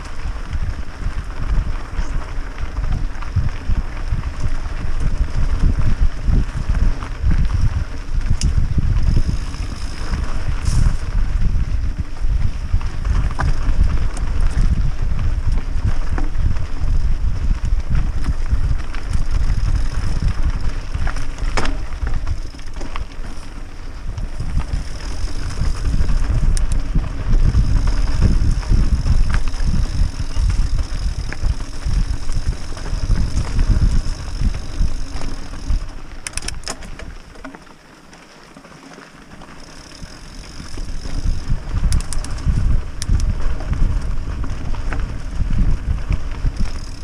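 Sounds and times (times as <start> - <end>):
wind buffeting microphone: 0.0 - 37.3, 39.8 - 47.0
bike rattling over bumps: 0.0 - 47.0
tyres rolling on dirt: 0.0 - 47.0
sharp clicks: 36.2 - 37.1, 41.8 - 43.3.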